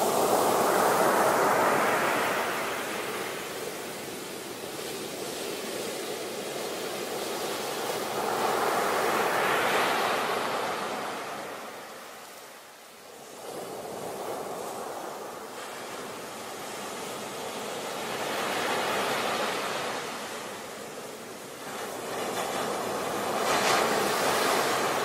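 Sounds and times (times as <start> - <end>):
ocean waves breaking on beach: 0.0 - 25.0.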